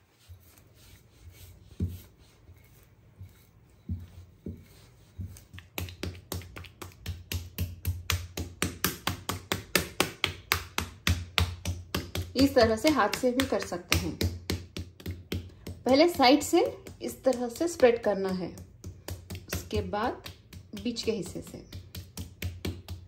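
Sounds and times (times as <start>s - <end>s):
hand slapping dough on table: 3.3s - 23.0s.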